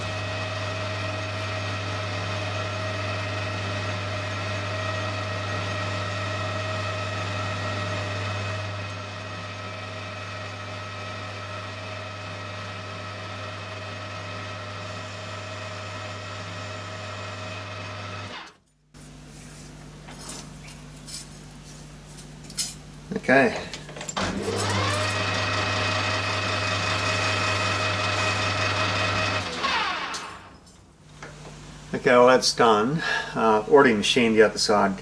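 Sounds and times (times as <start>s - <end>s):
metal lathe motor and gearbox hum: 0.0s - 18.6s, 23.4s - 30.6s.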